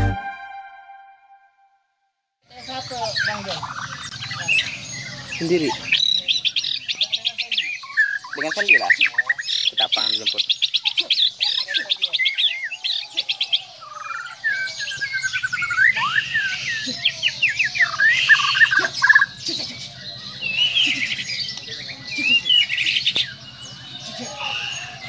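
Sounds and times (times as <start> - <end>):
bird singing whistled phrases: 7.6 - 19.6.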